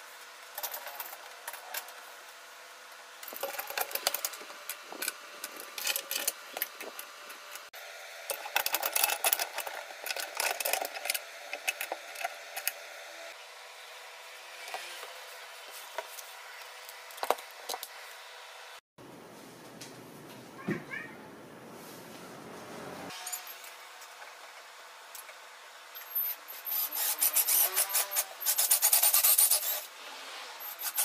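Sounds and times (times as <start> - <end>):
metal clamps clicking and rattling: 8.3 - 12.8.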